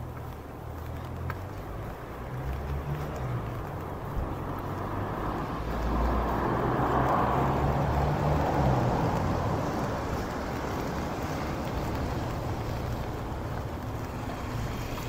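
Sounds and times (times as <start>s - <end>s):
low traffic rumble: 0.0s - 15.0s
car tyres hissing on wet road: 4.4s - 15.0s.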